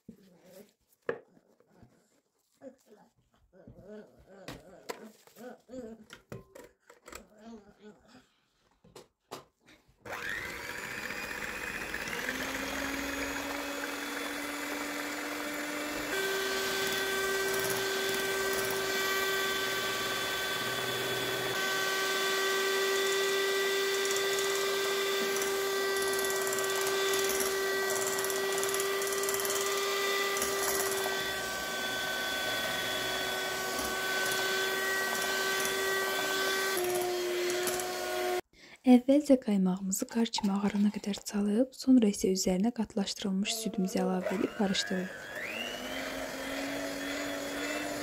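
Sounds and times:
electric hand mixer whipping cream: 10.0 - 38.4, 43.5 - 48.0.

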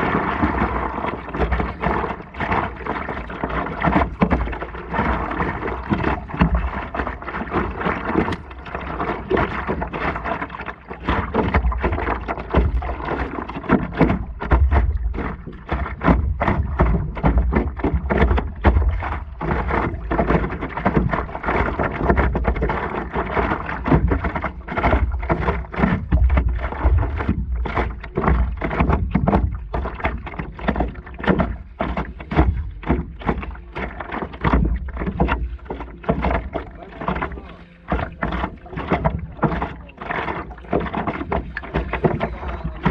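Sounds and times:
water splashing against paddleboard: 0.0 - 42.9.

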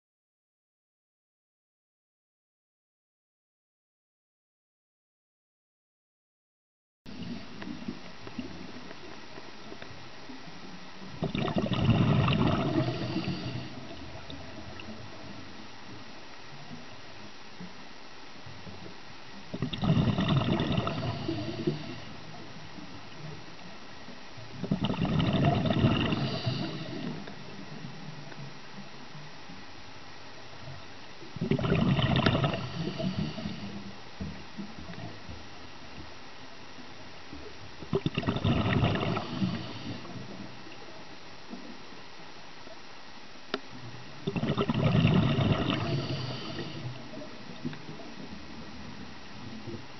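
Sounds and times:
underwater bubbling gurgle: 7.1 - 42.9, 43.5 - 49.9
faint clicks: 7.6 - 10.0
underwater hiss: 10.6 - 17.3, 19.6 - 23.4, 24.6 - 28.4, 30.5 - 35.2, 37.4 - 42.0, 43.8 - 49.8.

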